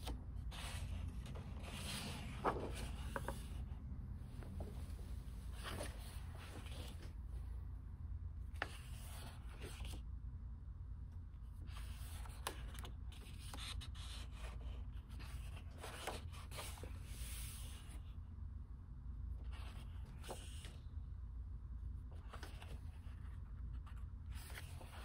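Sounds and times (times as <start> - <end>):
book pages turning: 0.0 - 3.7, 4.4 - 7.2, 8.5 - 10.0, 11.6 - 18.0, 19.5 - 20.8, 22.1 - 25.0
steady low hum: 0.0 - 25.0.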